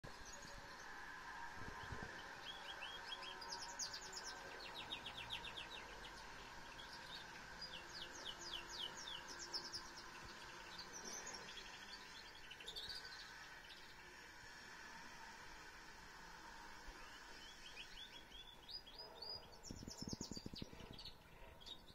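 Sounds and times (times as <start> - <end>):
canary singing trills: 1.8 - 14.0, 17.0 - 21.9.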